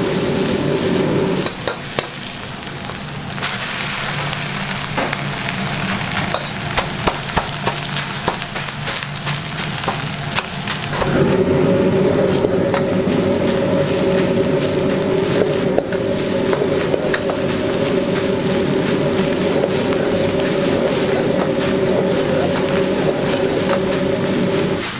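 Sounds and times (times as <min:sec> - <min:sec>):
droning hum: 0:00.0 - 0:24.9
utensils scraping a wok: 0:11.9 - 0:24.9.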